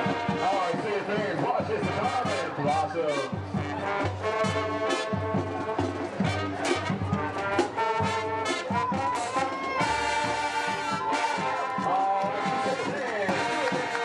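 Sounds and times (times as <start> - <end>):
bass drum and percussion: 0.0 - 14.0
brass playing chords: 0.0 - 14.0
marching band playing: 0.0 - 14.0.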